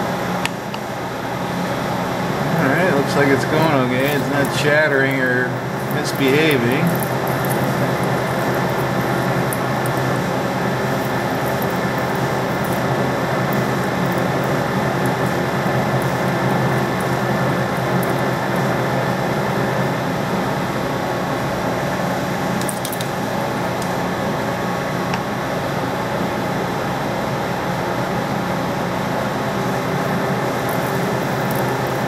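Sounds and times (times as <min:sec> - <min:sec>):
metal lathe cutting: 0:02.3 - 0:20.7, 0:29.4 - 0:32.0.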